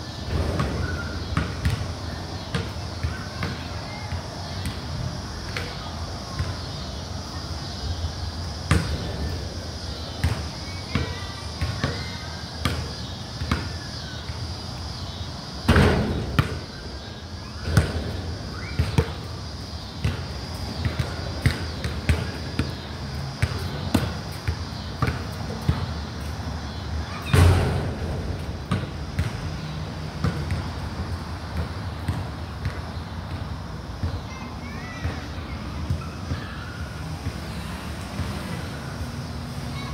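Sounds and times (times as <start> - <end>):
basketball bouncing on concrete: 0.3 - 4.8, 8.7 - 9.1, 10.0 - 14.4, 15.7 - 16.8, 17.5 - 19.3, 20.0 - 27.7, 28.4 - 30.8, 31.4 - 34.3.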